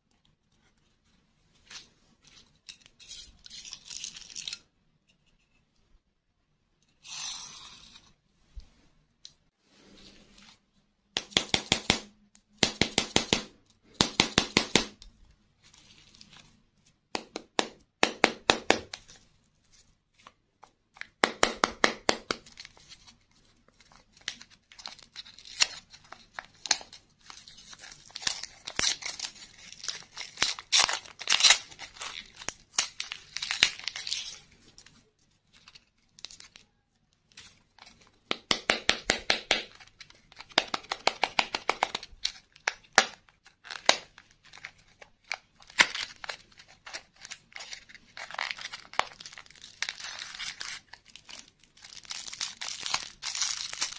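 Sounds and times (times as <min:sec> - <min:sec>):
candy wrapper crinkling: 0:22.3 - 0:38.3, 0:39.6 - 0:53.9.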